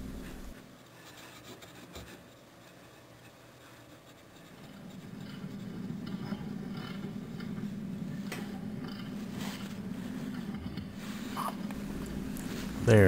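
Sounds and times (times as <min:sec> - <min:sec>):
cloth scrubbing metal pipe: 0:02.7 - 0:13.0.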